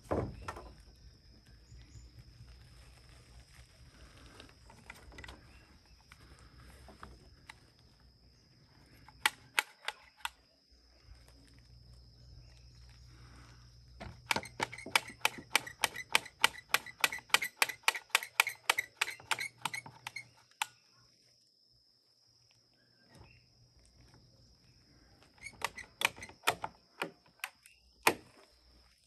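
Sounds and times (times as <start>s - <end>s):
hammer striking nails into wood: 14.0s - 20.6s, 25.4s - 28.3s.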